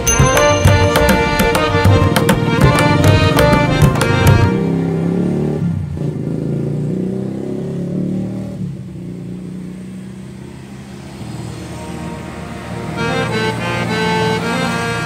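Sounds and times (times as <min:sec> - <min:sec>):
drum strokes: 0:00.0 - 0:04.6
low held notes: 0:00.0 - 0:04.7.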